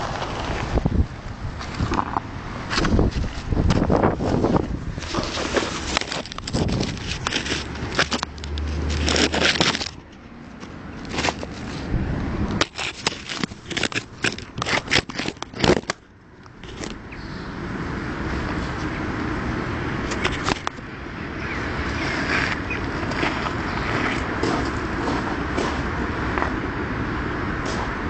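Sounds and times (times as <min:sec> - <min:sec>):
steady rushing noise: 0:00.0 - 0:28.0
scraping on kerbstones: 0:02.7 - 0:16.0.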